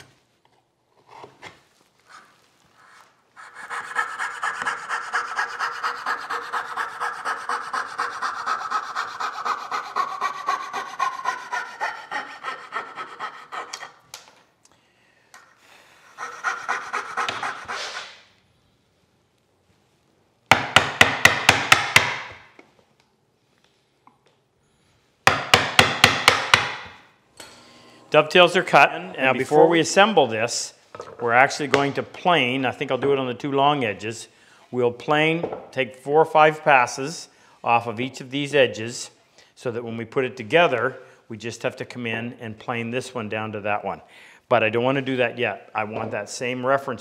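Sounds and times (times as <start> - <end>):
coping saw cutting wood: 3.4 - 14.0, 16.1 - 18.2
mallet striking chisel: 20.5 - 22.4, 25.3 - 26.9.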